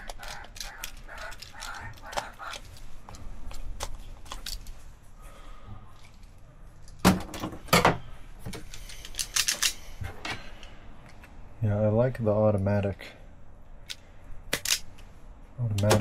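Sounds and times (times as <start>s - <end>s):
tools and wire clicking: 0.0s - 4.8s, 8.5s - 9.8s, 13.8s - 15.1s.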